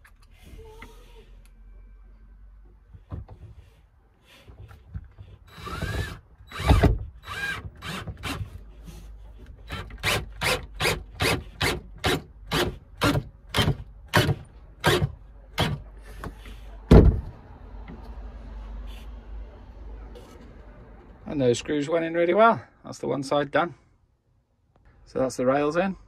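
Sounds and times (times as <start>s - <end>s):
screwdriver whirring: 5.5s - 8.6s.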